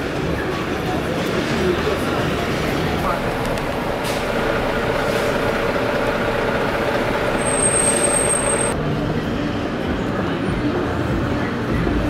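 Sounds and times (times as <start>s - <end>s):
city street traffic: 0.0s - 12.0s
thin high whine: 3.1s - 8.8s.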